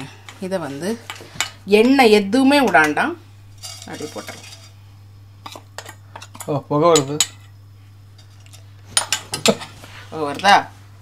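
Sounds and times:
spoon scraping a wok: 3.5 - 4.8.

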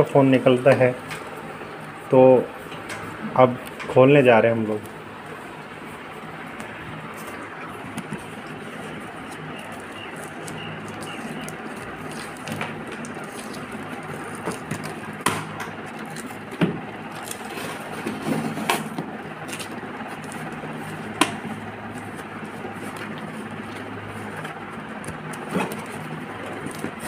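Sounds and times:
steady low hum: 0.0 - 27.0
cardboard box and tape rustling: 6.6 - 27.0.

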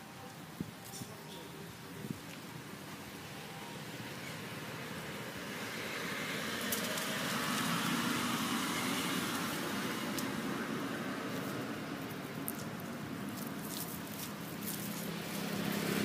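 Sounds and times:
motor vehicle passing: 4.1 - 16.0.

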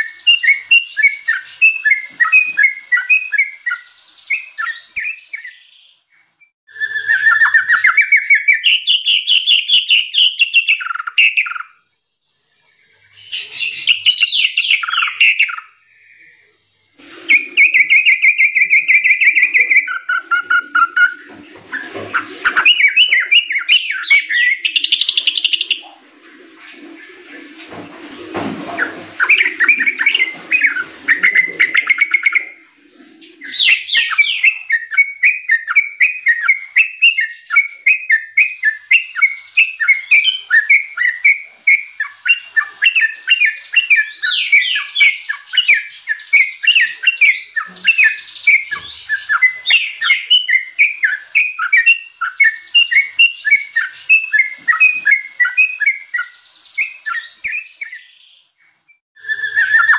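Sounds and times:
bird chattering whistled notes: 17.3 - 25.9, 28.8 - 32.6, 33.3 - 58.3.

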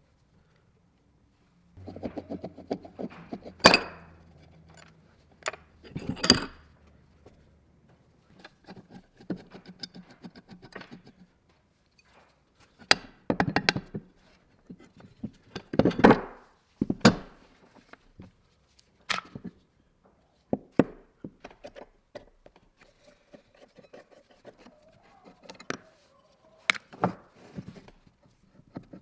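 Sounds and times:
metal parts rattling and clinking: 3.6 - 6.7.

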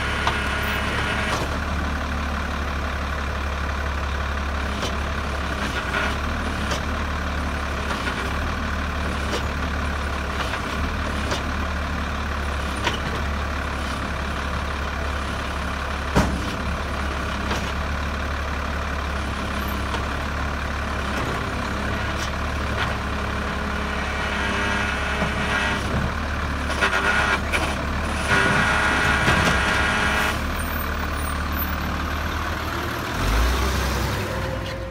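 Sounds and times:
garbage truck idling: 0.0 - 5.6, 6.2 - 23.8, 30.4 - 34.9
truck engine revving: 20.9 - 34.9.

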